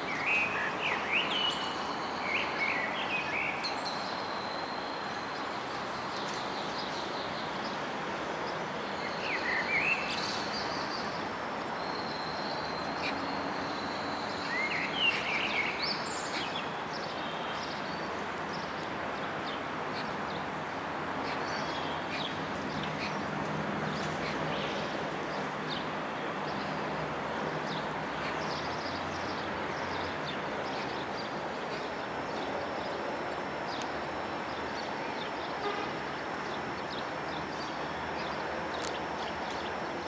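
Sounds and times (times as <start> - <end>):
outdoor background hiss: 0.0 - 40.0
birds chirping: 21.2 - 40.0.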